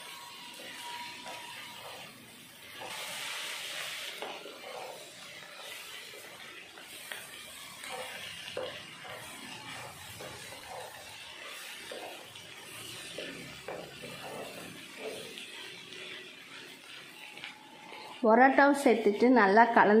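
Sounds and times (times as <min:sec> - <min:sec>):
food sizzling in a pan: 0:00.0 - 0:20.0.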